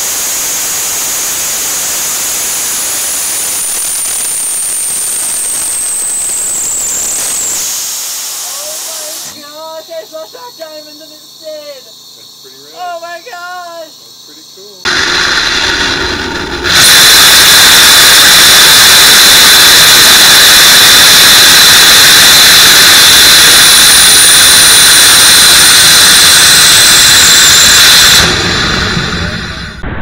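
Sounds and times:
rocket engine roaring: 0.0 - 9.4, 14.8 - 30.0
high whine: 0.0 - 9.5, 14.8 - 30.0
falling whistle: 2.5 - 9.4, 15.5 - 30.0.

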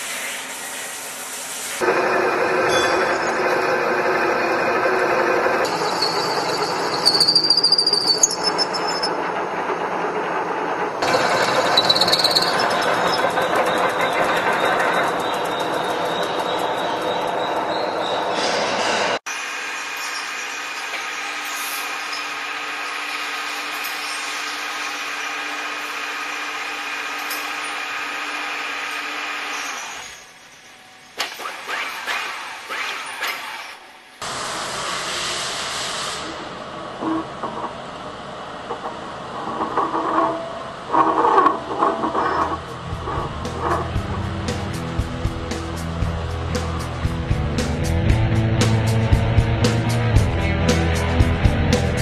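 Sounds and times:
rapid rattle and high whine: 1.8 - 18.1, 36.6 - 52.0
boring mill cutting steel: 1.8 - 46.0
metal squeals and scrapes: 2.1 - 9.5, 11.0 - 19.2, 38.7 - 44.8.

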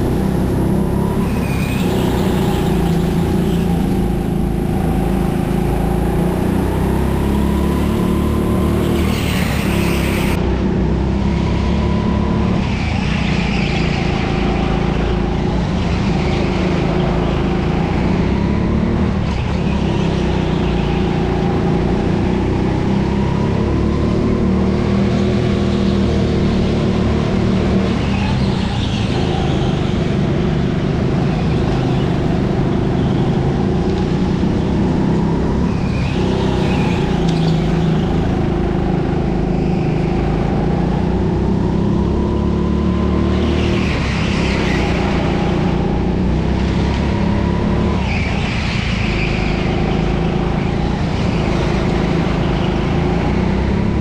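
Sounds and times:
go-kart engine running hard: 0.0 - 54.0
tyre squeals: 7.4 - 10.4, 11.4 - 22.2, 35.6 - 40.9, 41.8 - 53.6.

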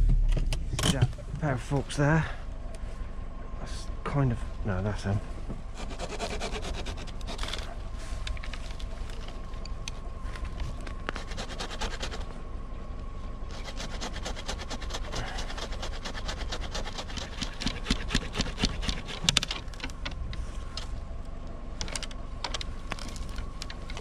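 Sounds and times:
hand saw cutting wood: 5.8 - 7.7, 11.1 - 12.3, 13.5 - 19.4
scattered clicks: 17.2 - 24.0.

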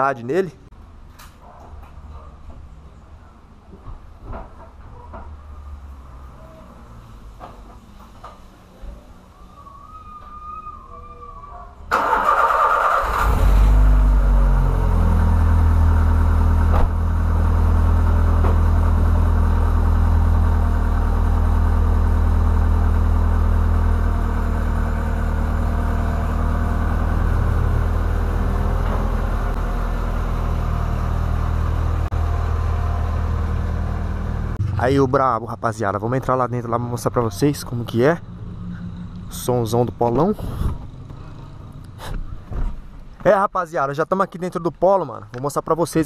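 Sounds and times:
car engine starter cranking: 11.9 - 14.3
loud car engine idling: 12.0 - 35.1.

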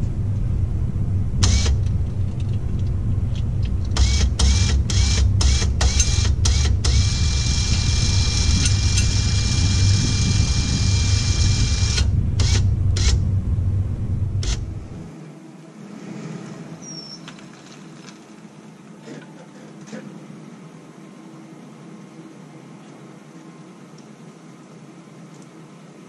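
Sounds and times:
low rumble: 0.0 - 15.2
electric winch motor whining: 1.4 - 2.4, 3.8 - 13.2.

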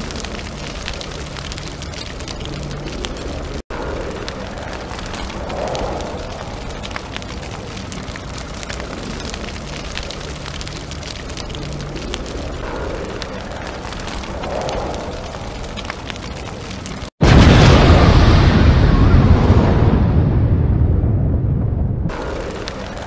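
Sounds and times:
crackles: 0.0 - 23.0
low rumbling noise: 0.0 - 23.0.

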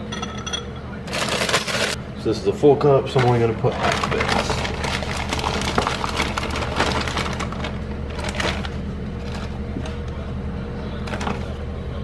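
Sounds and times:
plastic bag crinkling: 3.1 - 10.0.

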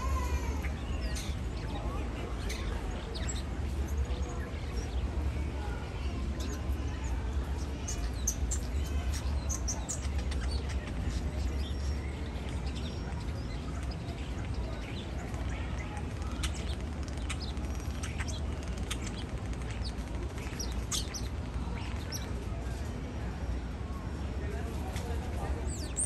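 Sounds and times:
starling singing: 5.9 - 22.4.

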